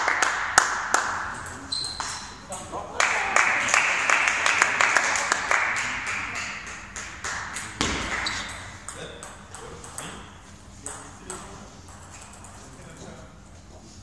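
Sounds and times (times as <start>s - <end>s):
spectators applauding: 0.0s - 1.4s, 3.0s - 8.3s
table tennis ball bouncing: 6.6s - 12.6s.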